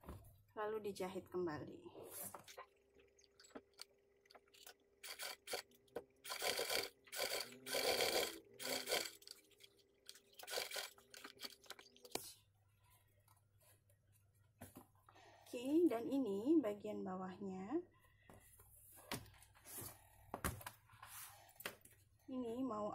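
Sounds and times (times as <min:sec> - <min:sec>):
sewing machine stitching: 0:05.0 - 0:09.4, 0:10.1 - 0:11.8.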